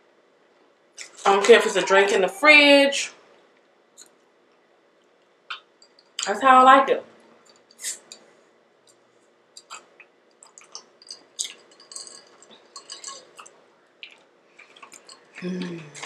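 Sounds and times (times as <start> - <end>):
ice clinking against glass: 10.7 - 13.5.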